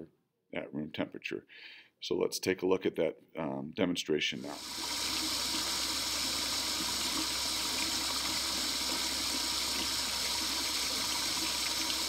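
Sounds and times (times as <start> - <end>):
water boiling with rushing hiss: 4.4 - 12.0.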